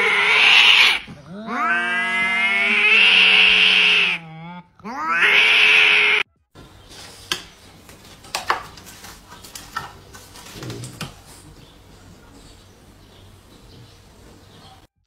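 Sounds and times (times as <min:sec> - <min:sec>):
cat hissing loudly: 0:00.0 - 0:04.2, 0:04.9 - 0:06.2.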